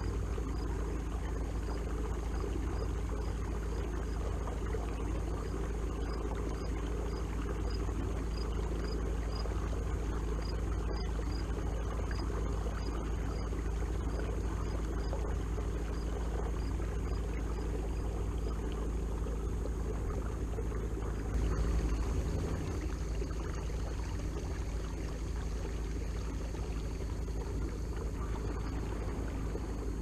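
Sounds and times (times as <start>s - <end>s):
water swishing along hull: 0.0s - 30.0s
electric trolling motor humming: 8.3s - 30.0s.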